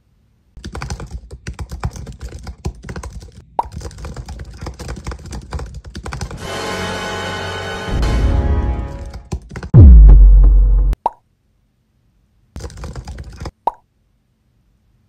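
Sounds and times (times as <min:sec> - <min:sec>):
fast typing on keyboard: 0:00.6 - 0:06.4, 0:09.0 - 0:09.8, 0:12.6 - 0:13.6
music: 0:06.4 - 0:09.3.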